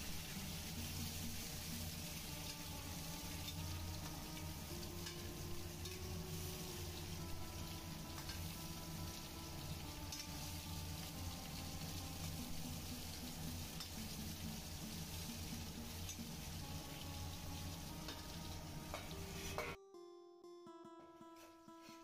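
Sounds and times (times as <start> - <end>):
food sizzling in oil: 0.0 - 19.8.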